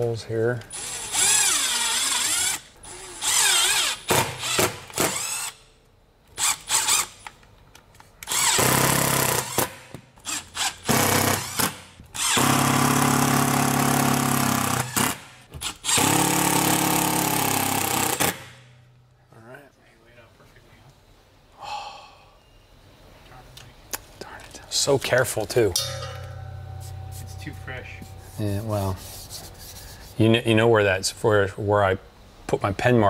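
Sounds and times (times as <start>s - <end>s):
cordless drill driving screws: 0.8s - 5.6s.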